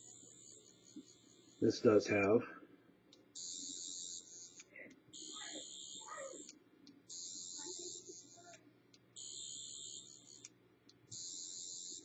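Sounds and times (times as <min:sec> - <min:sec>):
electronic whine from small speaker: 0:00.0 - 0:02.4, 0:03.2 - 0:12.0.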